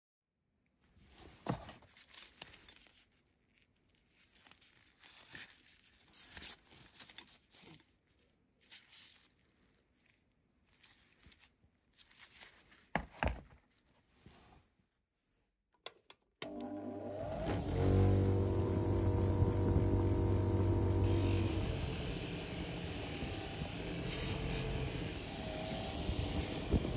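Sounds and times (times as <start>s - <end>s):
gloved hands rustling: 1.0s - 14.8s.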